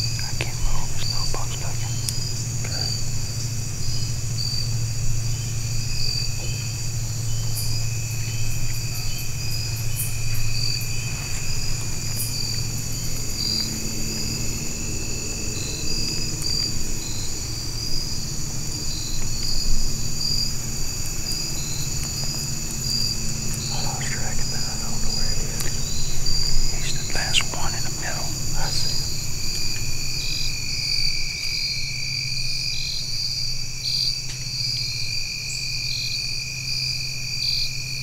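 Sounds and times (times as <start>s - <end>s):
low steady drone: 0.0s - 33.9s
faint steady hum: 0.0s - 38.0s
insects trilling: 0.0s - 38.0s.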